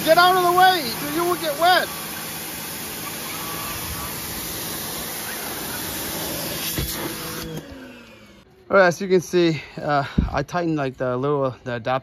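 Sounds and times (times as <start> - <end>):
water spray hissing: 0.0 - 7.5
pump motor humming: 0.0 - 8.5.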